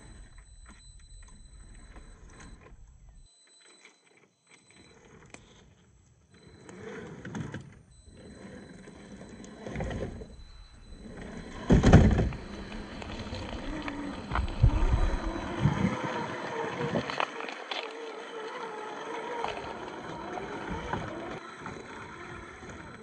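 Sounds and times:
toy car motor and gear whine: 0.0 - 23.0.

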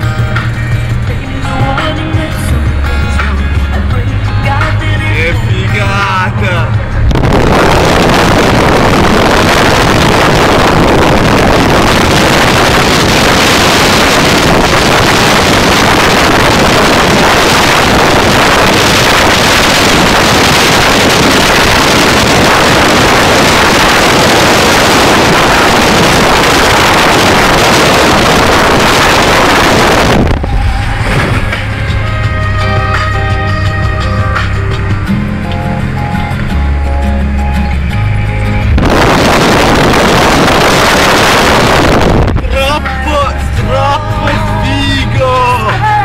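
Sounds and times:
music playing: 0.0 - 46.0
wind buffeting microphone: 6.8 - 32.3, 38.6 - 42.5
car cabin low hum: 6.9 - 33.0.

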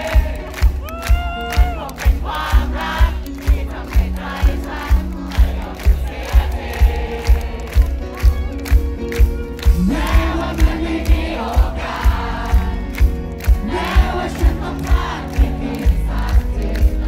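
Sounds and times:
bass guitar: 0.0 - 17.0
live band playing pop ballad: 0.0 - 17.0
man singing: 9.7 - 12.4, 13.6 - 17.0.

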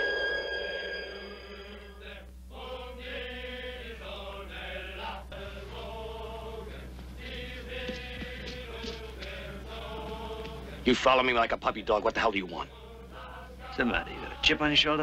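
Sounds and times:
sustained high musical tone: 0.0 - 2.1
group singing slow chant: 0.0 - 11.0, 12.6 - 15.0.

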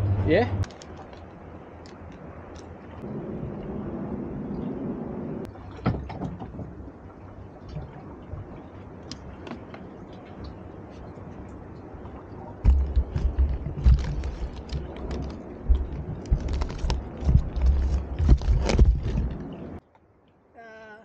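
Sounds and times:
hiss of wind and water: 0.0 - 19.8
water sloshing: 4.4 - 19.8
low thumps against cooler: 12.7 - 19.3.

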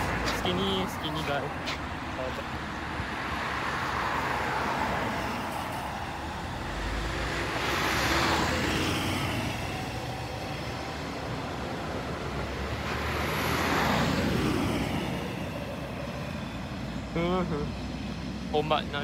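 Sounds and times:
road traffic: 0.0 - 19.0
diesel truck pulling away: 5.8 - 18.1.

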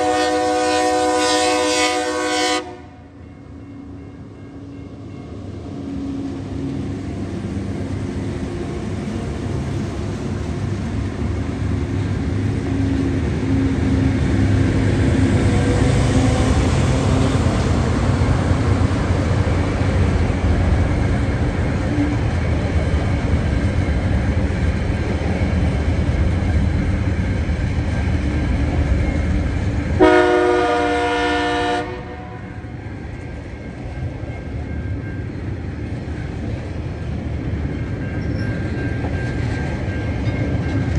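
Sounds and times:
train horn blast: 0.0 - 3.1, 30.0 - 32.8
diesel locomotive engine drone: 0.0 - 40.9
train wagons rolling: 5.0 - 40.9.

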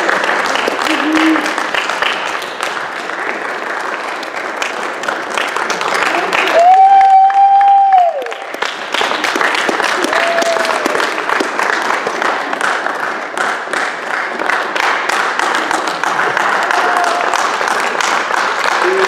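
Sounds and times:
loud cheer: 0.0 - 1.8, 6.0 - 8.6, 9.5 - 11.5, 15.6 - 19.0
audience applauding: 0.0 - 19.0.

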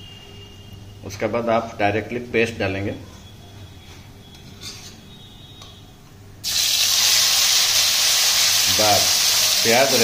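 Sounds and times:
paste sizzling in hot oil: 6.4 - 10.0.

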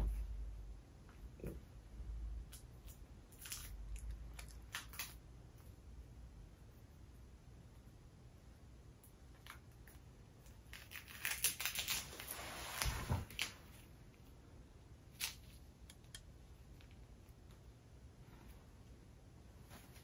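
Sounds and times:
rustling: 10.4 - 13.9, 19.5 - 20.0.

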